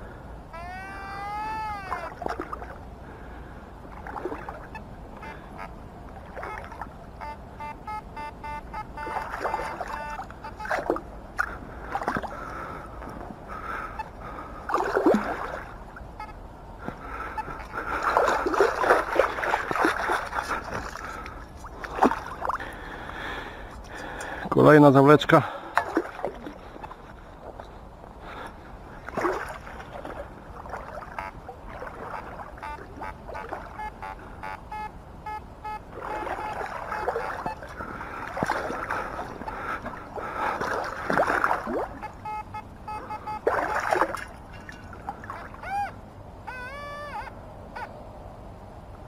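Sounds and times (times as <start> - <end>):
water splashing and sloshing: 1.3 - 46.5
metal detector tones: 6.4 - 10.8, 32.2 - 37.6, 42.0 - 43.8.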